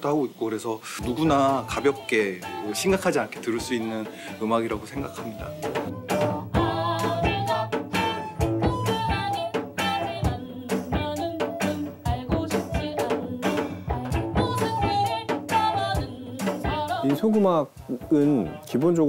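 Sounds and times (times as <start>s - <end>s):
drum kit: 0.8s - 19.0s
woman singing: 1.1s - 4.1s, 6.2s - 17.5s, 18.2s - 18.9s.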